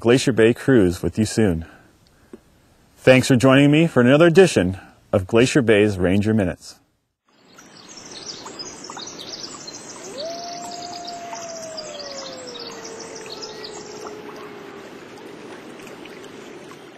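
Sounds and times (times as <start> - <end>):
small birds chirping: 7.3 - 14.7
long swooping bird call: 9.6 - 15.4.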